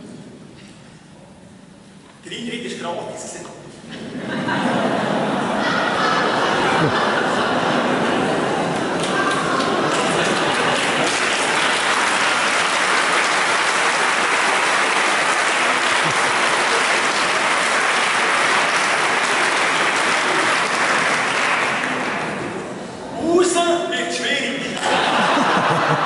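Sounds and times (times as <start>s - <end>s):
audience applauding: 6.6s - 22.8s, 24.8s - 26.0s.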